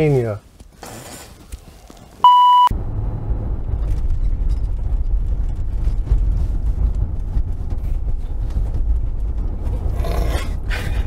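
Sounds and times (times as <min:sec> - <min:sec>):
censor bleep: 0:02.2 - 0:02.7
car driving rumble inside cabin: 0:02.2 - 0:11.0.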